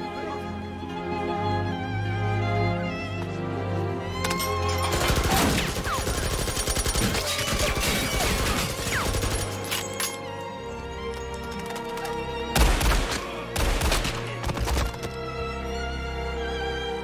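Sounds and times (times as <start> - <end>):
orchestral string music: 0.0 - 17.0.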